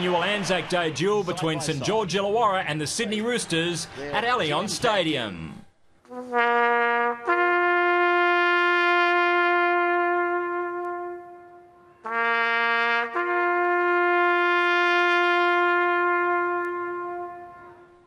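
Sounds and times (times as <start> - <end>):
bugle playing slow call: 6.1 - 18.0.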